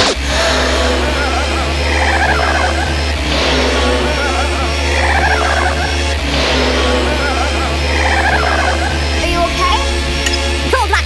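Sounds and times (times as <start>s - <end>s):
synth line gliding down in pitch: 0.0s - 10.6s
deep sustained bass: 0.0s - 10.9s
jungle techno track: 0.0s - 11.0s
drum hits: 3.2s - 8.0s.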